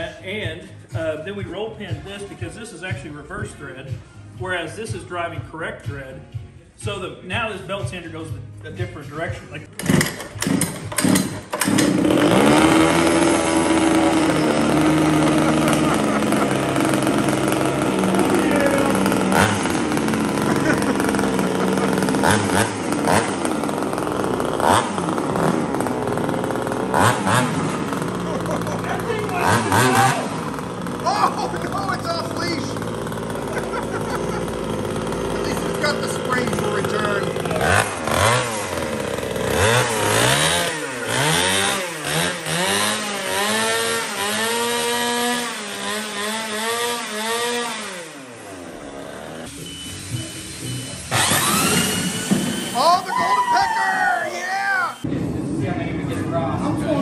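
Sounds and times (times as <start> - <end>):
small gas engine running fast: 9.8 - 53.3.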